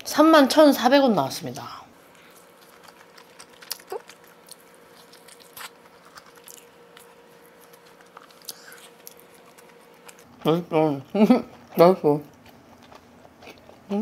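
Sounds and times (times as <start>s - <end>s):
person chewing pizza: 2.0s - 14.0s.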